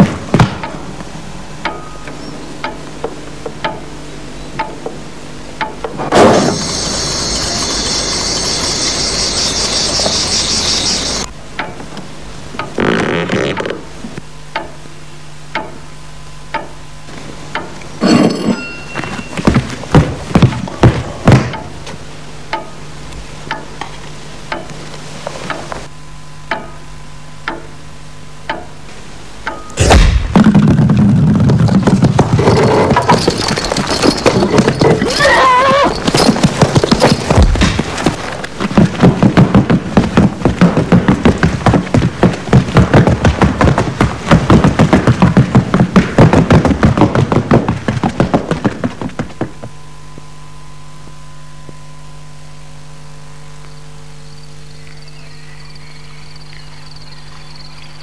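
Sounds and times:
low hum: 0.0 - 58.0
clatter of horse hooves: 5.6 - 11.9, 18.0 - 22.0, 30.4 - 49.8
loud crash: 6.0 - 8.5, 29.8 - 31.4
horse whinnying: 34.3 - 36.3.

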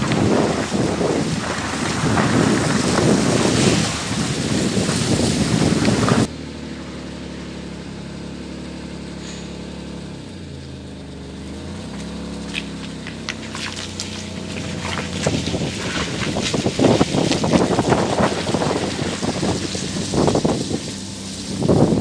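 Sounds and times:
tyres splashing on wet surface: 0.0 - 6.3, 11.6 - 22.0
car engine running low: 0.0 - 22.0.

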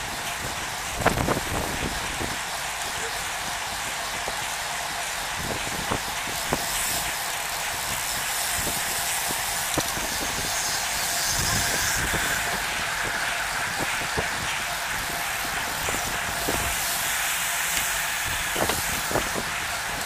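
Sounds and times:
rushing wind: 0.0 - 2.8, 5.2 - 20.0
bicycle tyre noise: 4.5 - 20.0.

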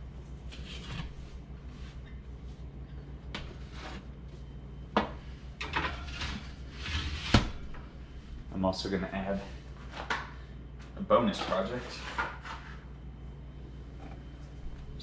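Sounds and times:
steady low hum: 0.0 - 15.0
metal pan scraping: 5.6 - 7.5.

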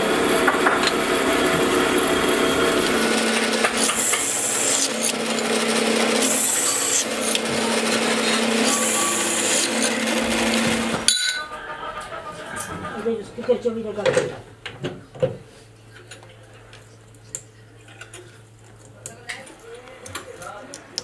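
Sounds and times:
drill bit cutting metal: 0.0 - 11.4
drill press humming: 0.0 - 13.2.

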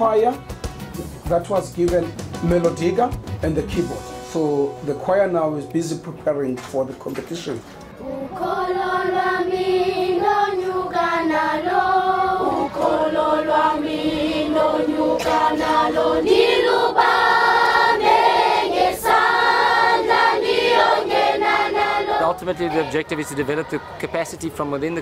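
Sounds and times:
children's choir singing: 8.0 - 24.5.

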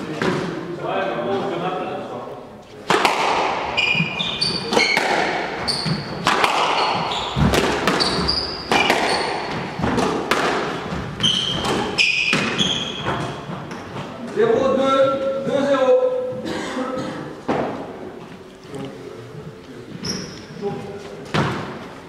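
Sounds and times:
squash ball cracking off rackets: 2.8 - 13.9
shoes squeaking on hardwood: 3.7 - 10.1, 10.8 - 14.2, 19.9 - 21.5.

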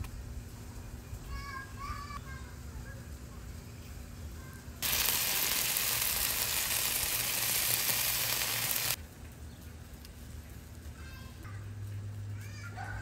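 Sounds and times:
chicken sizzling on a griddle: 4.4 - 9.0.

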